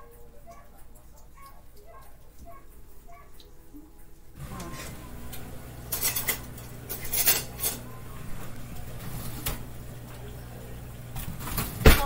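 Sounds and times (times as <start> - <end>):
low steady hum: 3.8 - 12.0
utensils and cookware clattering: 4.4 - 12.0.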